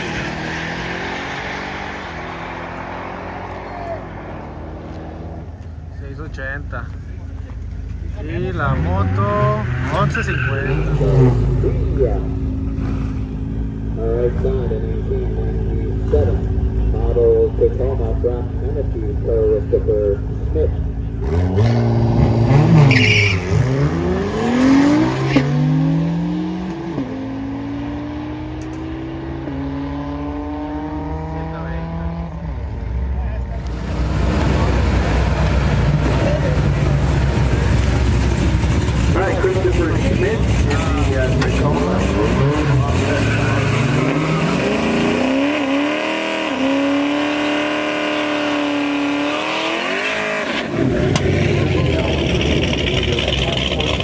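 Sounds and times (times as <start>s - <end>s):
cars accelerating hard: 0.0s - 5.7s, 8.2s - 18.8s, 21.0s - 54.0s
tire squeal: 9.0s - 11.4s, 22.5s - 24.0s, 24.9s - 25.5s.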